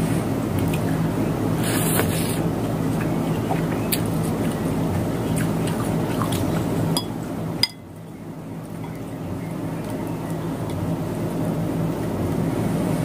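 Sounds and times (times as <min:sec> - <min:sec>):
low room hum and hiss: 0:00.0 - 0:13.0
soft eating sounds: 0:01.6 - 0:07.0.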